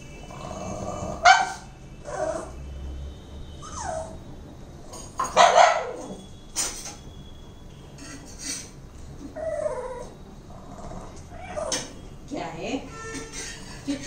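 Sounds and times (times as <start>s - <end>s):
dog barking: 1.2s - 1.7s, 5.4s - 6.0s
dog whining: 3.6s - 4.2s, 9.2s - 12.0s
dog yips: 11.3s - 11.9s.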